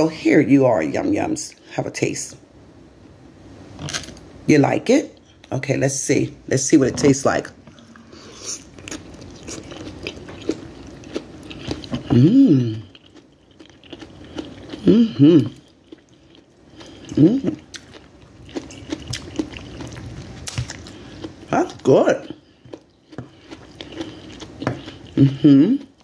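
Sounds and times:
person chewing food: 7.6 - 26.0
short hummed vocal sounds: 11.9 - 12.9, 14.8 - 15.6, 17.1 - 17.7, 25.1 - 26.0.

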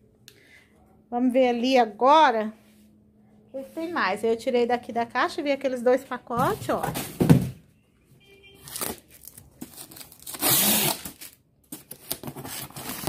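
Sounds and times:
cardboard packaging rustling: 8.6 - 13.0.

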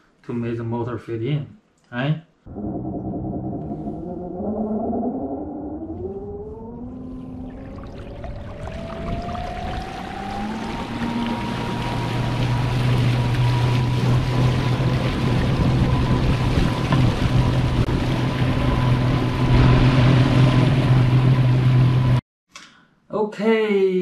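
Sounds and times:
wind noise: 2.5 - 22.0
rushing water: 7.1 - 21.9
electric motor whine and hum: 8.6 - 22.2.

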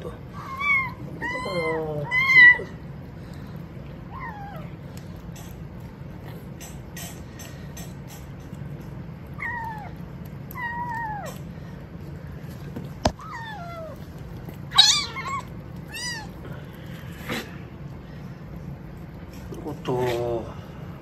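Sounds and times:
kitten meowing: 14.7 - 16.4.

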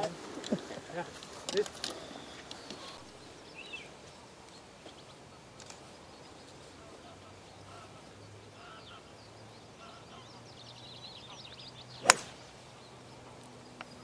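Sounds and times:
birds calling faintly: 0.0 - 14.0
golf club striking ball: 12.0 - 12.4.

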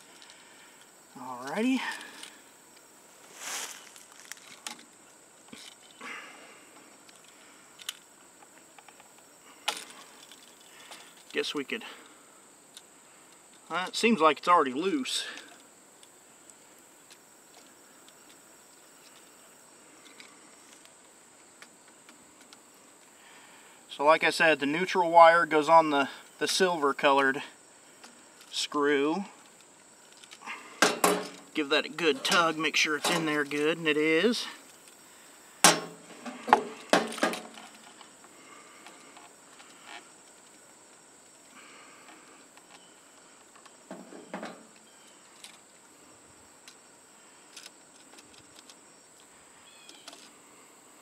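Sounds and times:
faint scraping and handling: 3.2 - 6.0, 34.4 - 40.5
high-pitched insect trill: 22.6 - 50.9
sharp clicks and knocks: 30.8 - 31.5.

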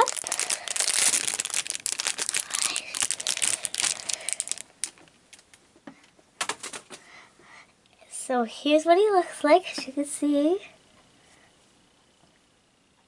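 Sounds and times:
plastic bag crinkling and tearing: 0.0 - 5.5.

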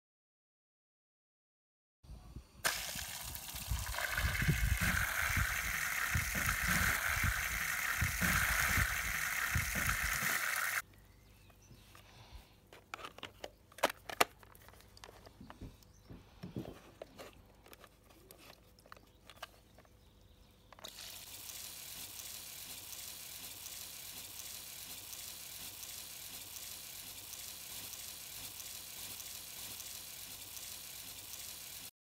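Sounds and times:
water spraying hiss: 2.6 - 10.8, 20.9 - 31.9.

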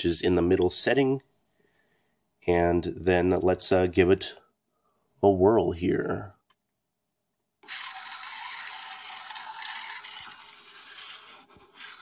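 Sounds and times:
turntable scraping grinding noise: 7.6 - 12.0.

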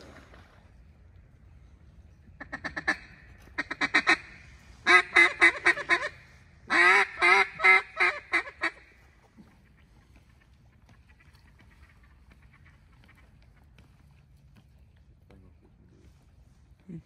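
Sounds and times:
duck call quacks: 2.4 - 8.9.

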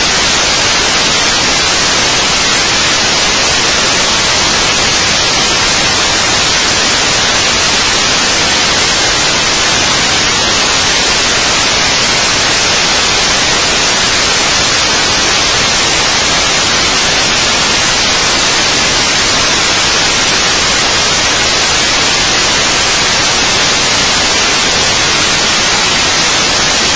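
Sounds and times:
static hiss: 0.0 - 26.9.

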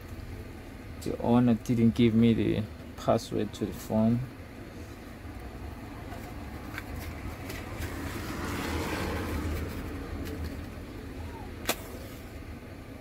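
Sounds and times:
steady low hum: 0.0 - 13.0
road vehicle passing: 4.4 - 13.0.

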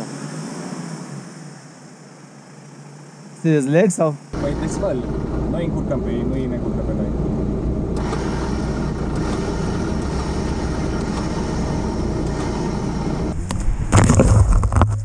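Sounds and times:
engine idling: 4.4 - 15.0
loud rumbling and knocks: 13.3 - 15.0.

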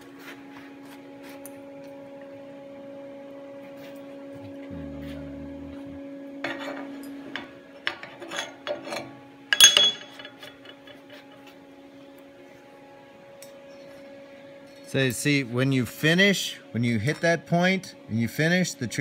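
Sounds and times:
steady electrical hum: 0.0 - 19.0
ringing metal clank: 9.5 - 11.0
steel clinking and knocking: 9.5 - 11.0.

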